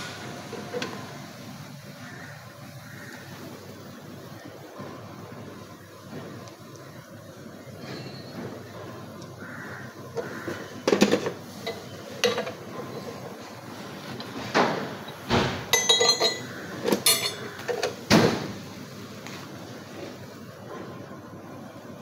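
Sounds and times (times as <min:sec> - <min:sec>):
hand tools knocking on metal: 0:15.7 - 0:17.9.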